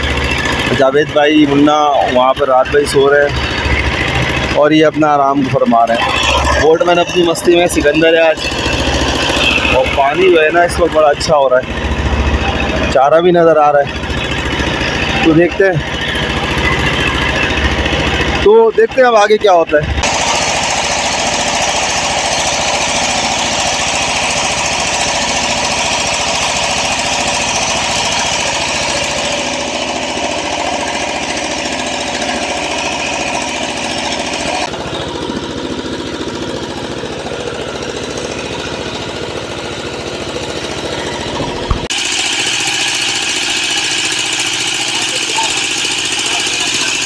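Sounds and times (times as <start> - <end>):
boat engine running: 0.0 - 47.0.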